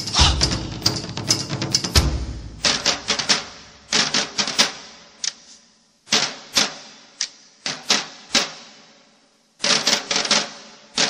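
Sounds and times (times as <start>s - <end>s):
sharp cracking strikes in a hall: 0.0s - 5.4s.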